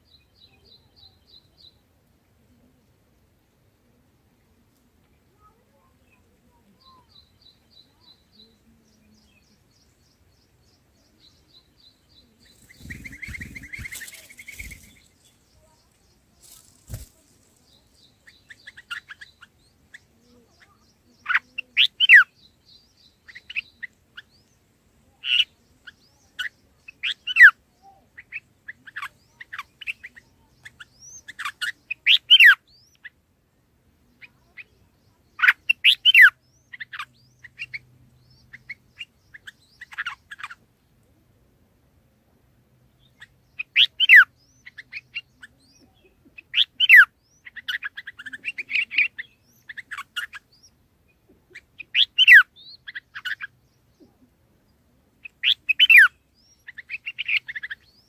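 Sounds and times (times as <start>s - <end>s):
bird chattering: 11.2s - 22.4s, 25.2s - 27.6s, 28.2s - 33.1s, 35.4s - 40.6s, 43.1s - 50.7s, 51.5s - 54.1s, 55.2s - 58.0s.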